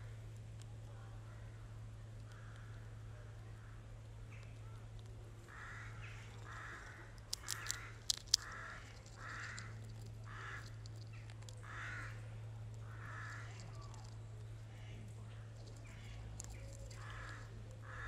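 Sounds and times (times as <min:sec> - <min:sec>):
crow cawing: 0:05.5 - 0:10.8, 0:11.6 - 0:13.7, 0:17.0 - 0:18.0
sharp clicks: 0:06.3 - 0:11.7.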